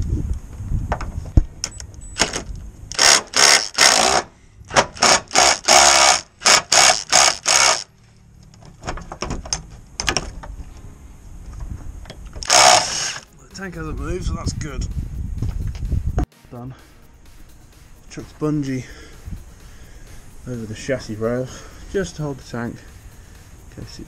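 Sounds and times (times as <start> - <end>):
impact driver hammering: 3.0 - 7.9.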